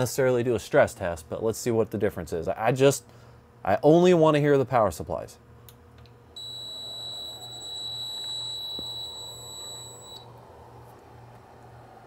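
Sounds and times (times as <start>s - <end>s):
faint fan noise: 0.0s - 12.0s
high-pitched electronic beep: 6.4s - 10.2s.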